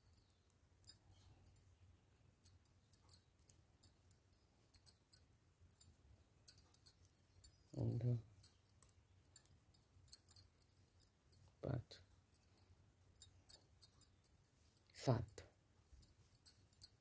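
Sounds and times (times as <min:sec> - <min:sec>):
knitting needles clicking: 0:02.2 - 0:12.6, 0:13.2 - 0:15.0.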